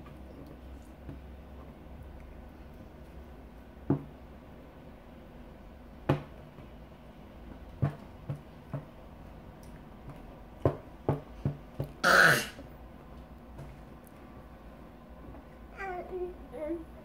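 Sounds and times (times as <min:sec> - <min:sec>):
baby exclamation: 0:12.0 - 0:12.6.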